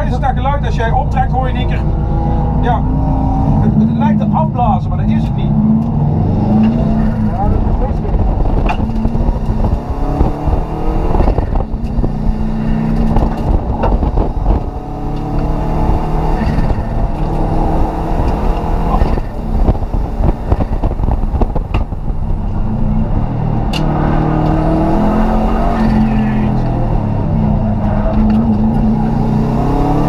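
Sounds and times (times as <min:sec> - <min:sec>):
rally car engine revving: 0:00.0 - 0:30.0.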